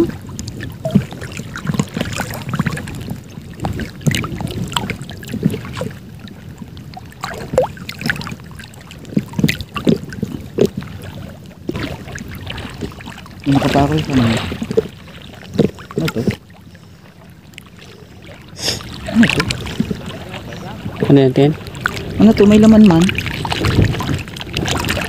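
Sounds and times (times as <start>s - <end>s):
sea water sloshing and splashing: 0.0s - 25.0s
small splashes and knocks: 7.0s - 16.6s, 17.5s - 25.0s.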